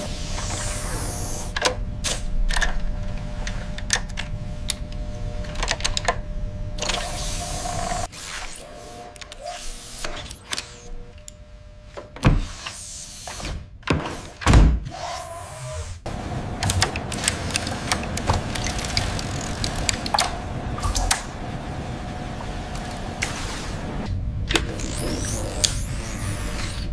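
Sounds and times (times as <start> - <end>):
machine hum: 0.0 - 12.2, 15.2 - 26.9.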